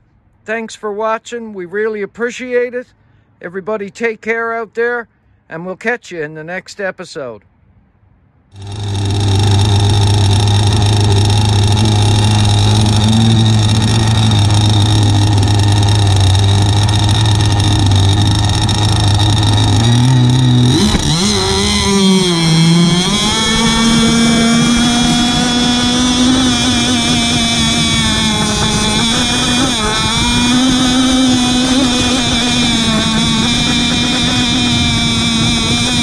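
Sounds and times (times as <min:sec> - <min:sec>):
two-stroke boat engine revving: 0:08.5 - 0:36.0.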